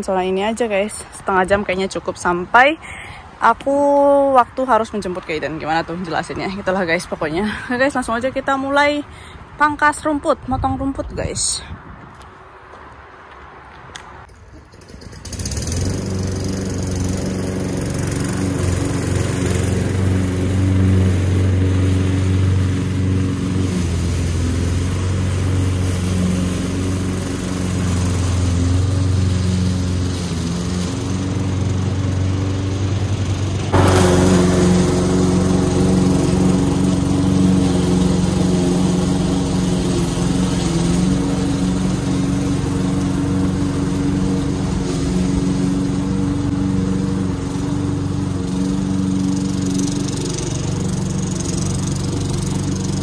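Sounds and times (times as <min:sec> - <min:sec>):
lawn mower engine running: 0:14.3 - 0:53.0.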